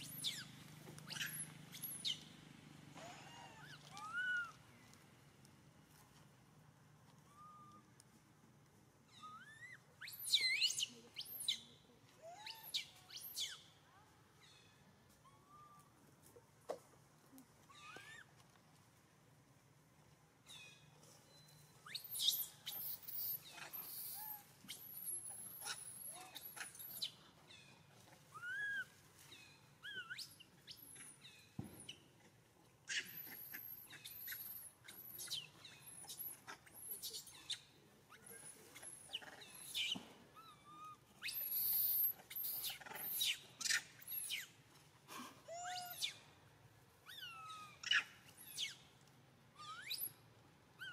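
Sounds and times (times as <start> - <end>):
high-pitched chirps and squeaks: 21.3 - 27.2, 32.9 - 37.7, 38.3 - 44.5.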